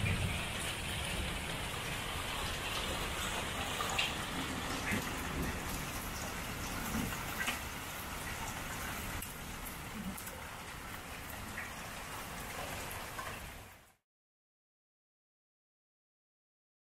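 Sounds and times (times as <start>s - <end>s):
hailstones ticking: 0.0s - 13.4s
hail and rain pelting: 0.0s - 13.8s.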